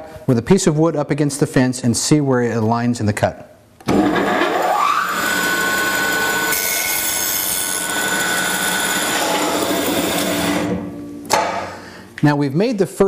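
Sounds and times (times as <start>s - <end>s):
bandsaw whining: 3.9s - 10.8s.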